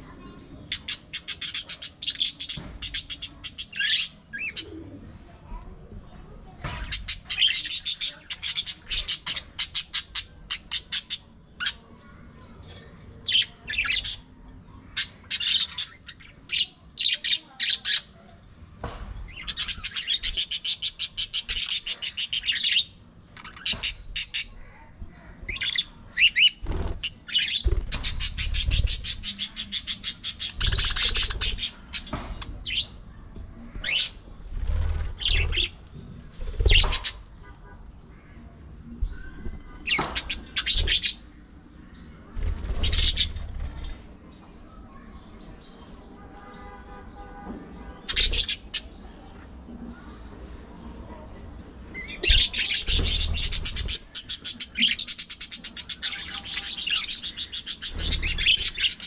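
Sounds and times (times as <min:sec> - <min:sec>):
budgerigars chattering: 0:25.5 - 0:32.9, 0:52.0 - 0:59.0.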